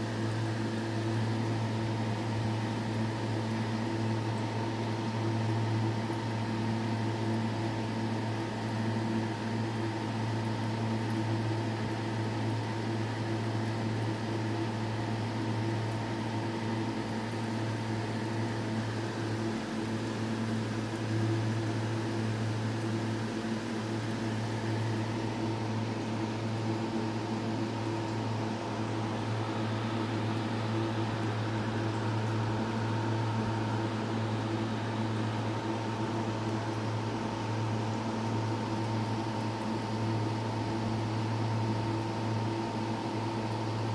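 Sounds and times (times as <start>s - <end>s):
filter pump humming: 0.0s - 43.9s.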